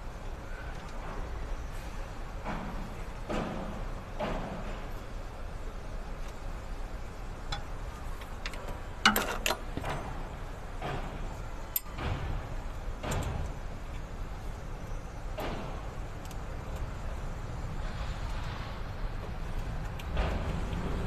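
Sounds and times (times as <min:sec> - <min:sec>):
low steady background rumble: 0:00.0 - 0:21.0.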